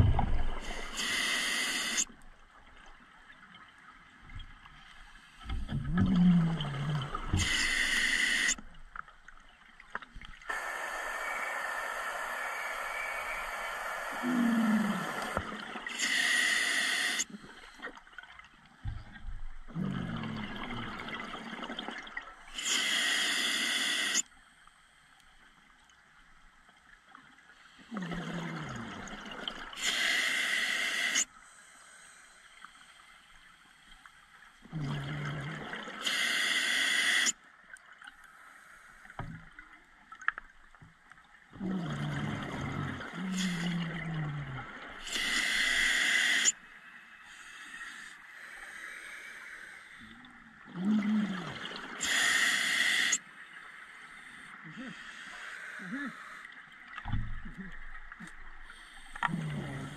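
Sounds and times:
diver inhaling through regulator: 0.6 - 2.1, 7.3 - 8.6, 10.5 - 17.8, 22.6 - 24.2, 29.8 - 32.4, 36.0 - 37.3, 45.0 - 46.6, 52.0 - 53.2.

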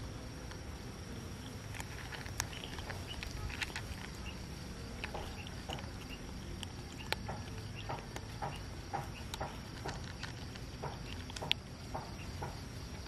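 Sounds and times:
cats crunching dry kibble: 1.4 - 13.0.

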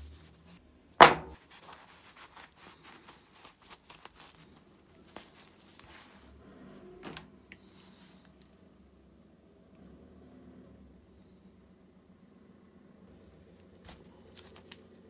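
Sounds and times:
cloth rustling and rubbing: 1.4 - 6.4.

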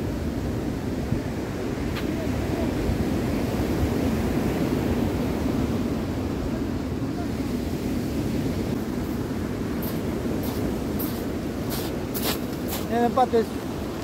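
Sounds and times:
wind buffeting microphone: 0.0 - 14.0
surf washing on pebbles: 8.7 - 14.0.

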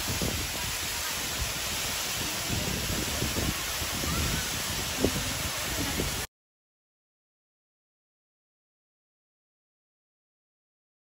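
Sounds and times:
waterfall rushing: 0.0 - 6.3
wind gusts on microphone: 0.0 - 6.3.

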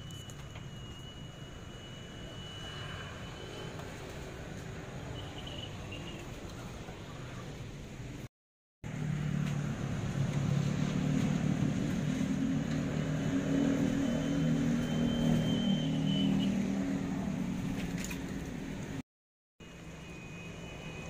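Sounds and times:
faint high whistle: 0.0 - 4.1, 14.0 - 16.6.

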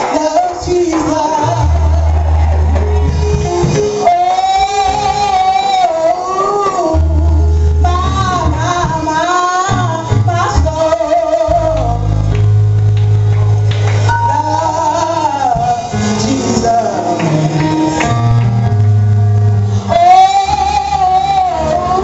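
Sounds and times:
woman singing gospel: 0.0 - 2.4, 3.6 - 12.4, 14.0 - 18.0, 19.8 - 22.0
low sustained bass notes: 1.4 - 5.2, 6.9 - 22.0.

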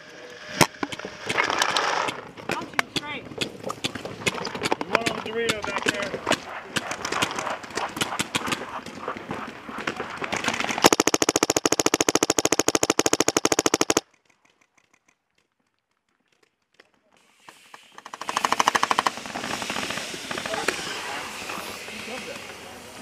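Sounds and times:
paintball marker rapid firing: 0.6 - 14.0, 17.8 - 20.8
paintball markers popping: 2.0 - 9.0, 10.3 - 14.0.

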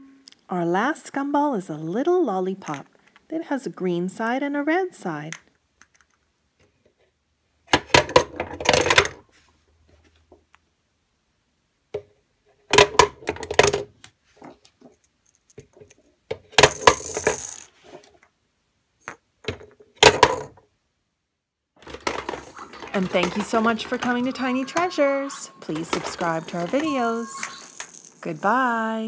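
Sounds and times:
plastic capsules rattling down chute: 16.6 - 17.7, 21.8 - 28.6.

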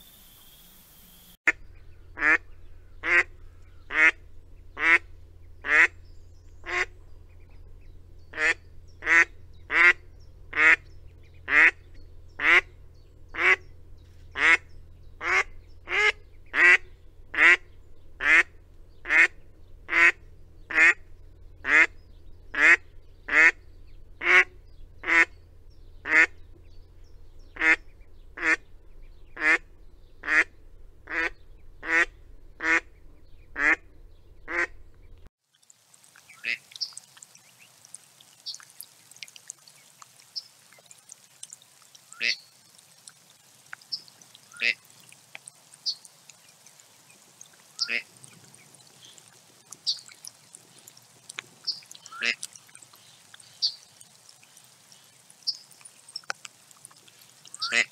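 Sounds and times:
duck calling with rising pitch: 42.0 - 42.5, 43.7 - 46.1, 47.7 - 54.0, 57.5 - 57.9.

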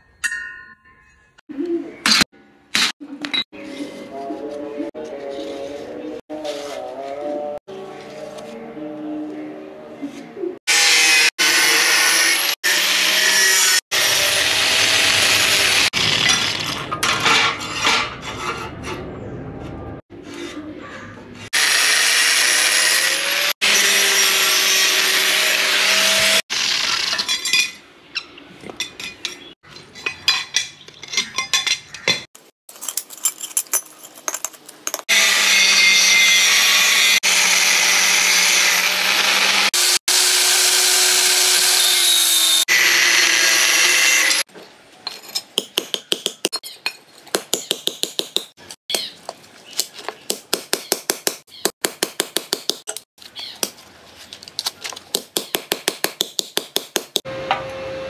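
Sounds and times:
angle grinder cutting steel sheet: 10.7 - 17.9, 21.5 - 27.4, 35.1 - 44.5.

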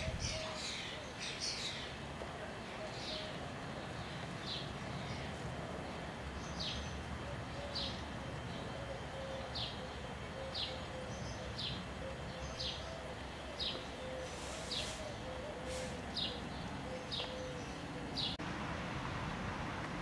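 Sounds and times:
bird chirping: 0.0 - 2.1, 2.7 - 18.4.

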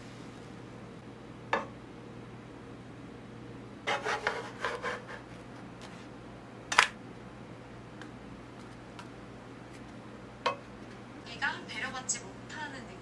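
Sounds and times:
steady low hum: 0.0 - 13.0
ladle scraping frying pan: 3.9 - 5.3.

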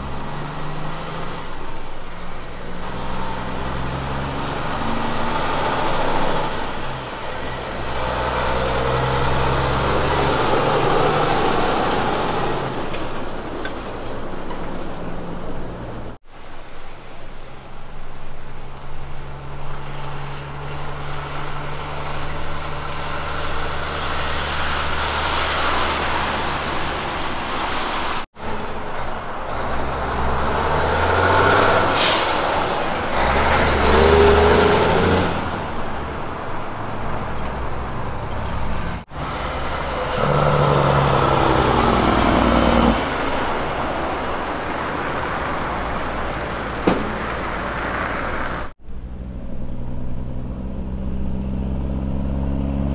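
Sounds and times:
truck engine note climbing: 0.0 - 16.2, 28.4 - 52.9
trucks passing with diesel engines: 0.0 - 52.9
air hiss: 31.9 - 32.7.

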